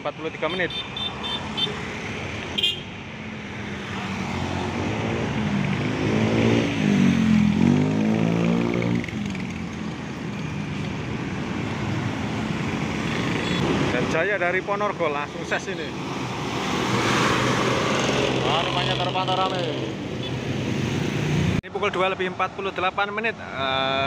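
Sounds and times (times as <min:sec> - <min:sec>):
heavy road traffic: 0:00.0 - 0:24.0
vehicle engine revving: 0:04.3 - 0:09.6.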